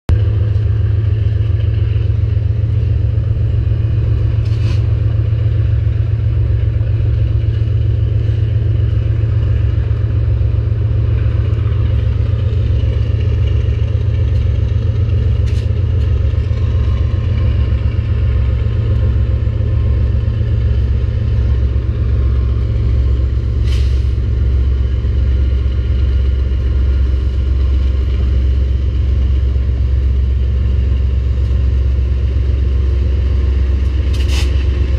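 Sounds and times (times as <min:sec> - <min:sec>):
locomotive low drone: 0:00.0 - 0:34.9.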